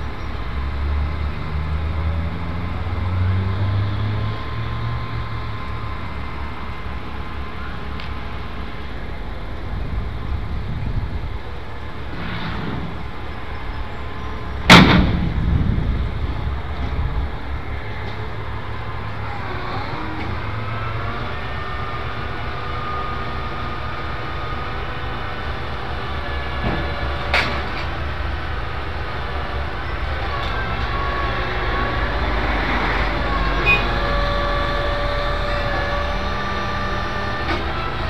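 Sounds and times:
diesel truck engine rumble: 0.0 - 38.0
loud sharp bang: 14.7 - 15.9.

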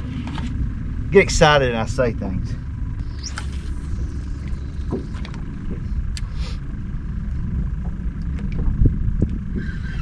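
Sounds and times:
low thump: 4.8 - 5.8
wind buffeting microphone: 7.0 - 10.0.

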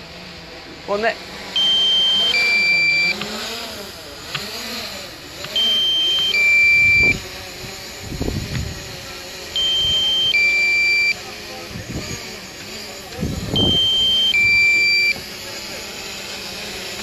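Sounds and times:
drone motors whining: 0.0 - 17.0
two-tone electronic warning beep: 1.6 - 3.2, 5.5 - 7.2, 9.6 - 11.2, 13.5 - 15.2.

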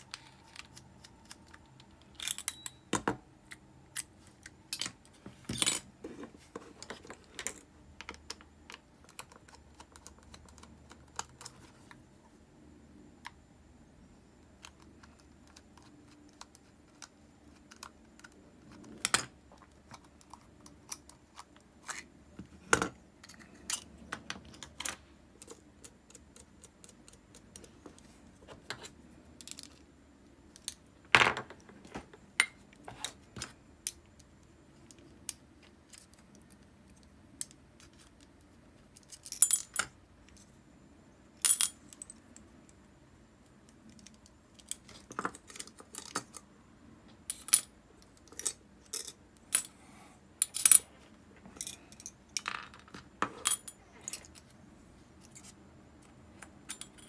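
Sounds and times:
small metal parts clinking: 0.0 - 5.9, 38.9 - 40.4, 41.4 - 42.2, 47.3 - 49.7, 50.4 - 50.8, 51.6 - 54.5.

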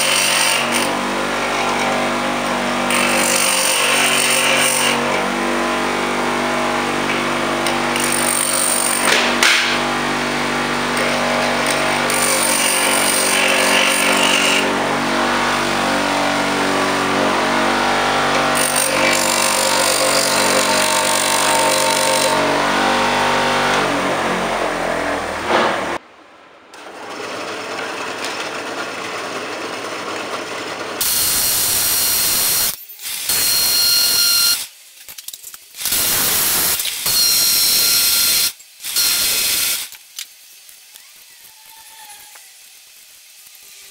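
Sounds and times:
bench grinder grinding metal: 0.0 - 26.0
drill press spinning against file: 7.0 - 17.2, 18.1 - 22.6.

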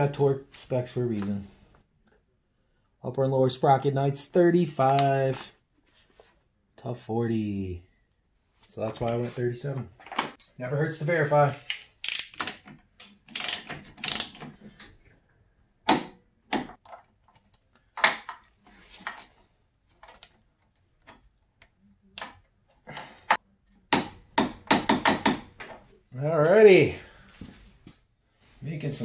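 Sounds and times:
metallic clicks of hand tools: 11.7 - 14.5.

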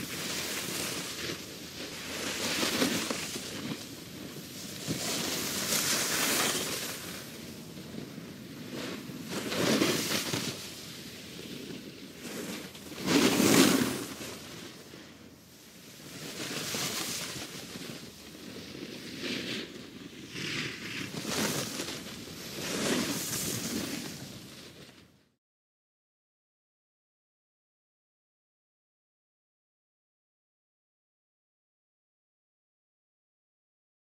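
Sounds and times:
skis scraping snow: 0.0 - 25.1.

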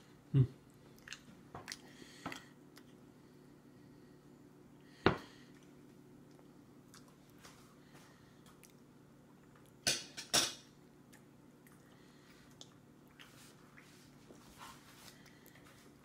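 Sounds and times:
low room hum: 0.0 - 16.0.

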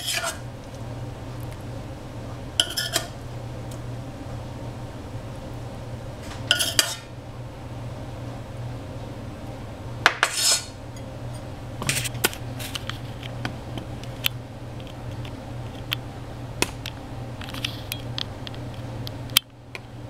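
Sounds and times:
utensils clinking and scraping dishes: 0.0 - 0.4, 2.6 - 3.1, 6.2 - 7.1, 10.1 - 13.2.

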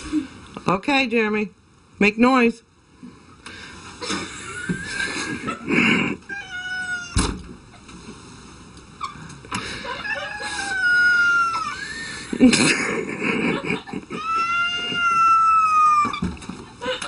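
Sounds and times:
cat meowing: 6.3 - 7.2, 10.0 - 12.0, 14.1 - 16.3.

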